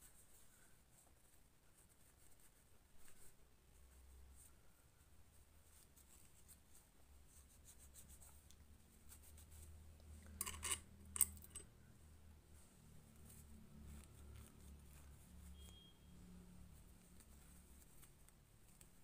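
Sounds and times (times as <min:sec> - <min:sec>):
cloth rubbing on metal: 0:00.0 - 0:08.4
small metallic clicks: 0:10.4 - 0:11.7.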